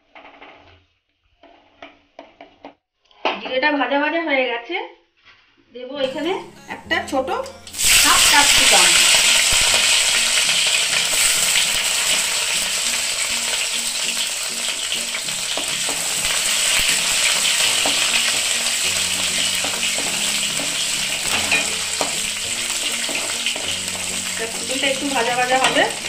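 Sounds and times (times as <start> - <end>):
pepper sizzling in hot oil: 6.1 - 26.0.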